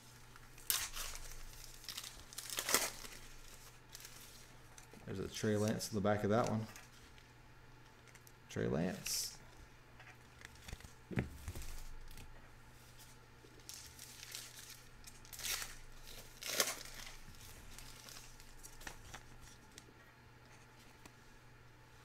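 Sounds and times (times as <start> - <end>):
foil pack tearing and crinkling: 0.6 - 4.5, 13.6 - 19.5.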